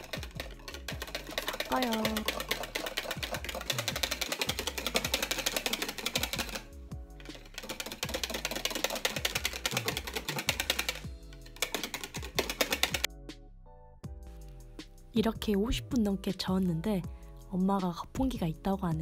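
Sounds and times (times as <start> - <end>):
whisk clicking against bowl: 0.0 - 13.1
background music with beat: 0.0 - 19.0.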